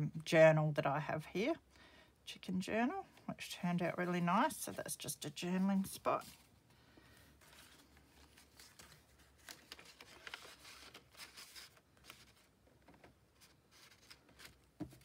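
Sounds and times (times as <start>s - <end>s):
paper and card rustling: 5.8s - 15.0s.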